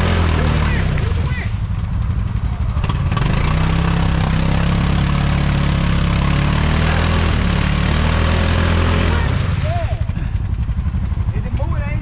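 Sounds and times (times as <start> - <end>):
atv engine running: 0.0 - 12.0.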